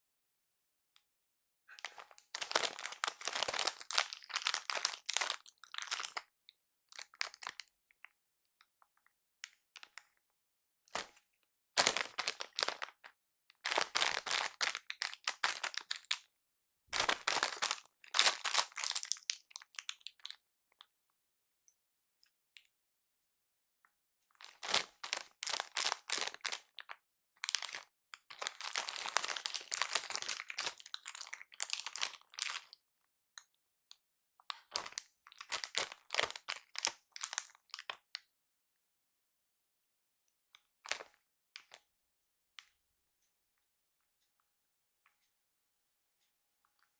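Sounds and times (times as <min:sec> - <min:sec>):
plastic snack bag crinkling: 0:01.8 - 0:06.3, 0:06.9 - 0:07.6, 0:11.8 - 0:16.3, 0:17.0 - 0:20.4, 0:24.4 - 0:32.8, 0:34.5 - 0:38.0, 0:40.8 - 0:41.8.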